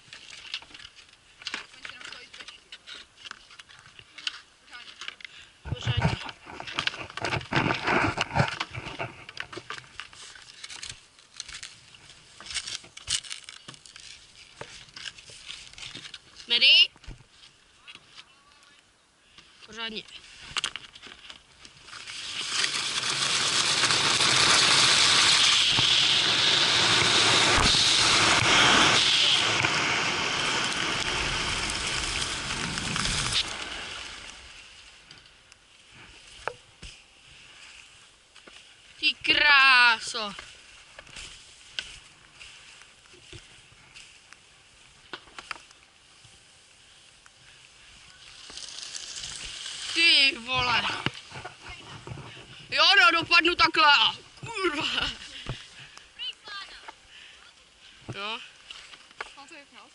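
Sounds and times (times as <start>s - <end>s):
skis hissing on ice: 21.8s - 35.0s, 46.0s - 57.3s
wind rushing over helmet camera: 22.3s - 34.6s.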